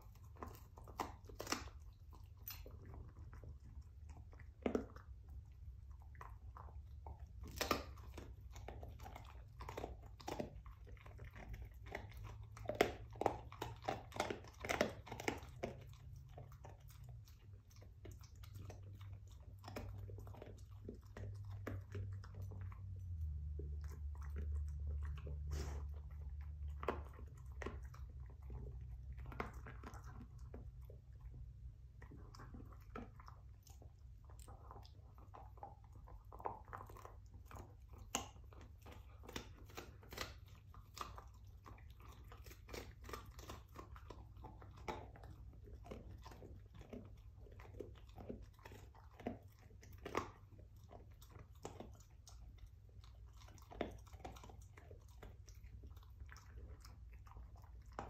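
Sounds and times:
dog chewing a bone: 0.0s - 58.0s
low steady hum: 0.0s - 58.0s.

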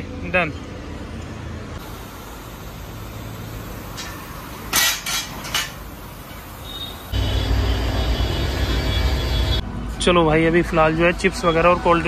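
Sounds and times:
metal clanks: 4.0s - 5.8s.

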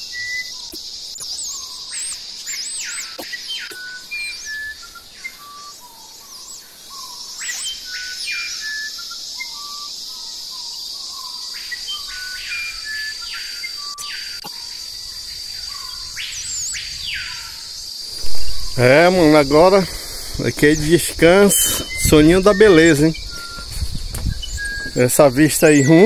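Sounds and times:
birds whistling: 0.0s - 26.0s
high-pitched insect drone: 0.0s - 26.0s.

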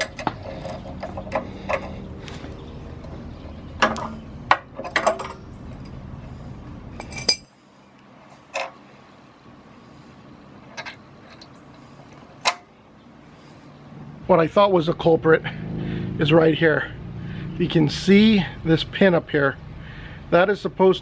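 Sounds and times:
low steady background rumble: 0.0s - 21.0s
metal clinks and taps: 7.0s - 7.5s.

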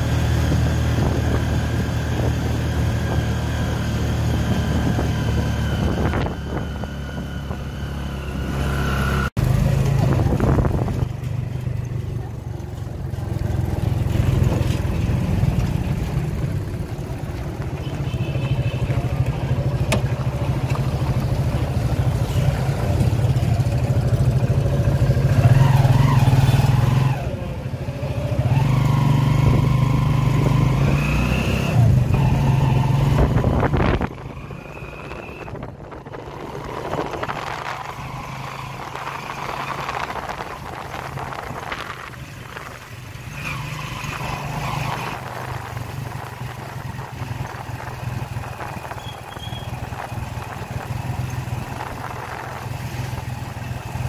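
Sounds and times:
motorcycle engine running: 0.0s - 31.0s, 31.8s - 54.0s.

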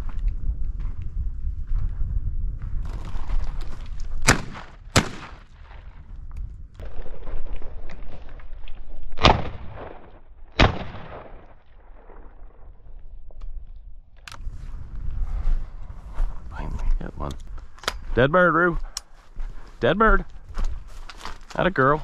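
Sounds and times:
shotgun shots with echo: 4.2s - 5.5s, 10.6s - 11.5s.

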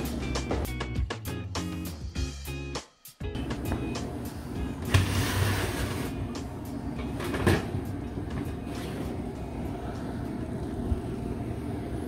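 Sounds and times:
steady low hum: 3.4s - 12.0s.

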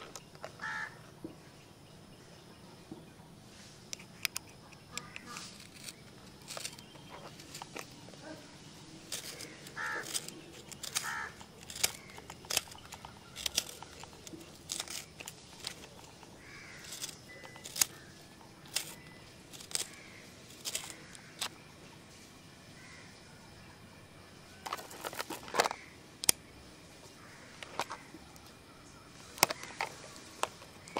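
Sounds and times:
pencil scratching plastic: 4.8s - 8.4s, 9.1s - 21.5s.

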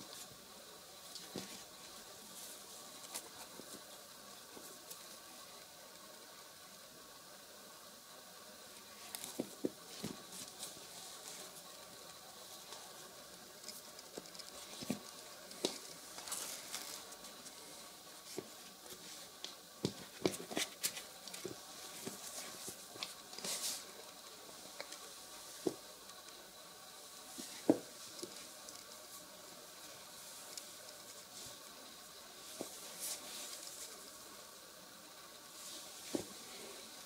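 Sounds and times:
fabric and soles rustling: 0.0s - 6.2s, 8.8s - 37.0s
shoes tapping on wooden floor: 19.8s - 20.7s, 27.6s - 28.3s.

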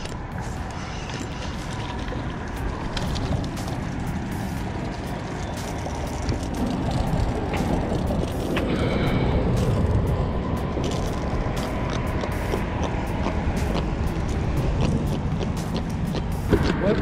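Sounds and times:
road traffic rumbling: 0.0s - 17.0s.

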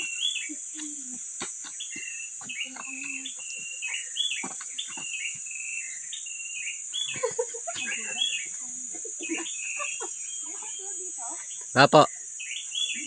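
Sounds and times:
footsteps on rock: 0.0s - 6.0s
forest birds chirping: 0.0s - 13.0s
high-pitched insect drone: 0.0s - 13.0s.

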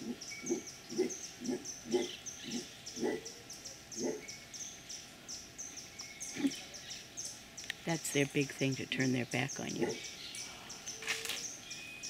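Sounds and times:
howler monkey grunting: 0.0s - 4.3s, 6.3s - 6.8s, 9.7s - 10.8s.

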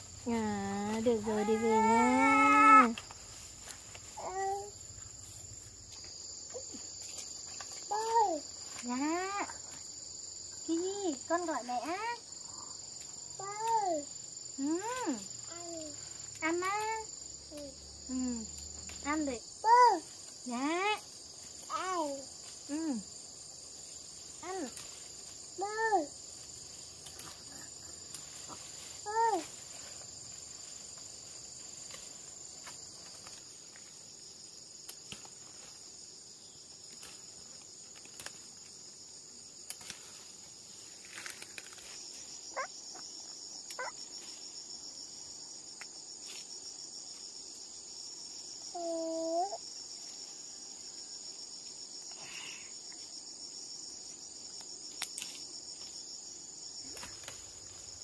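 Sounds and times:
high-pitched insect chorus: 0.0s - 58.0s
pulsing insect trill: 0.0s - 58.0s
leaves snapping and rustling: 5.9s - 9.0s, 23.8s - 25.5s, 26.3s - 34.0s, 34.7s - 36.0s, 36.8s - 38.9s, 39.6s - 42.4s, 54.5s - 56.0s, 56.8s - 58.0s.

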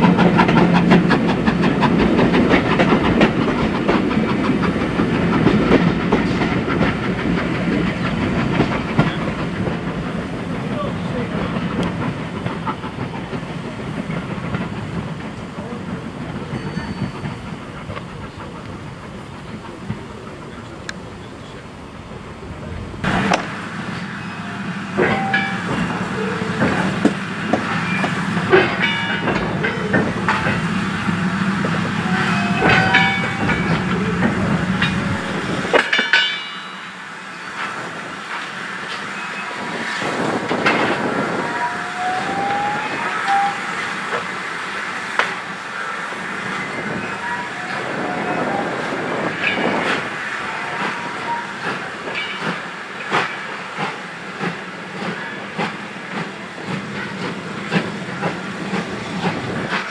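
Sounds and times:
train wheels clicking over rail joints: 0.0s - 59.9s
low rumble: 21.8s - 23.7s.

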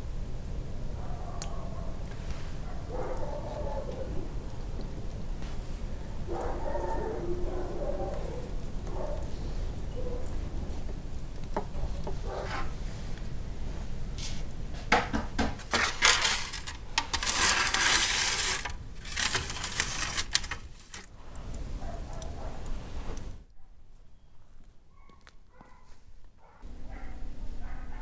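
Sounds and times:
metal tray clattering and scraping: 15.4s - 21.1s.

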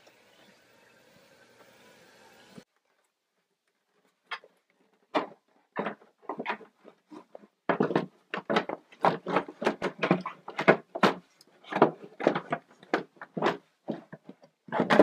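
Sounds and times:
plastic cover knocking and clattering: 5.1s - 15.0s.

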